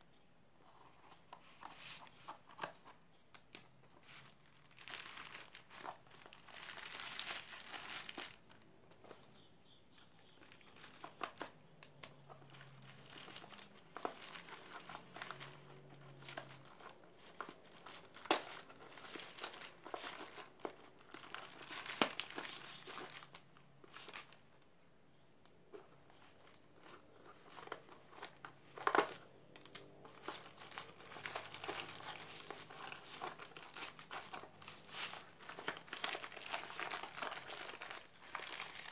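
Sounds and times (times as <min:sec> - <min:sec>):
plastic packaging crinkling: 0:04.0 - 0:09.2, 0:09.9 - 0:24.6, 0:26.1 - 0:38.9.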